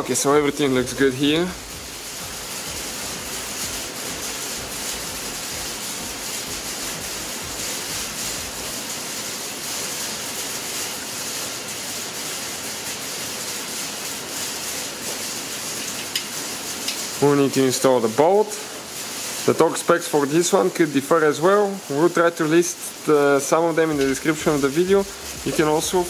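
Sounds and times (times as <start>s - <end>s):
background hiss: 13.0s - 26.0s.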